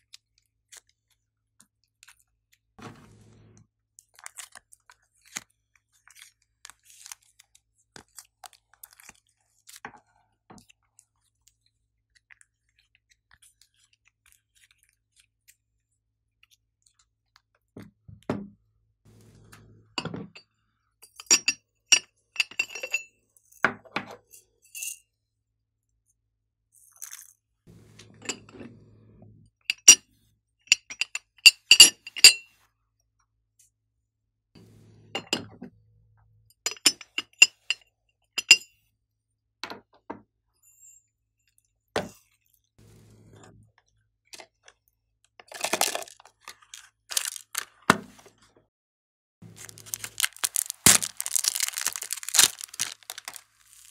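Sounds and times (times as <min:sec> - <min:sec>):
clinks against glass dish: 0:21.2 - 0:23.0, 0:36.7 - 0:37.8, 0:38.4 - 0:38.7
plastic box opening rustle: 0:45.9 - 0:47.8, 0:49.5 - 0:53.9.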